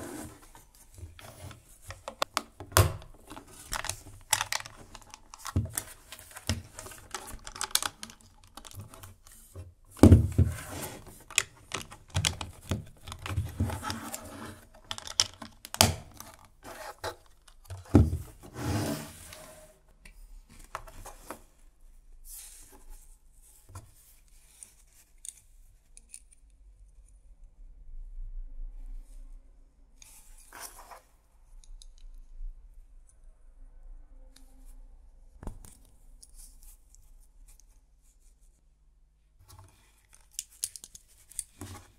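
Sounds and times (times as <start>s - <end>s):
plastic bricks clicking and rattling: 2.0s - 9.4s, 11.1s - 14.0s, 14.7s - 16.5s.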